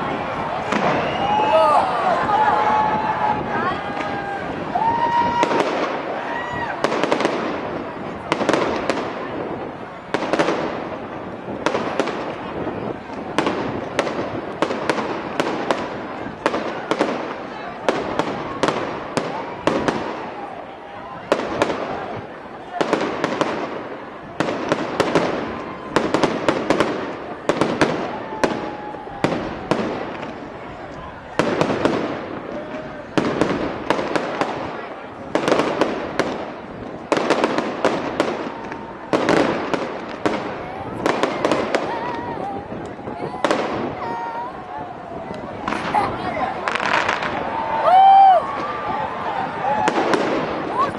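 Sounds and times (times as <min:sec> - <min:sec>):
fireworks bangs: 0:00.0 - 0:50.9
fireworks crackle and rumble: 0:00.0 - 0:50.9
firework whistling: 0:00.6 - 0:01.6.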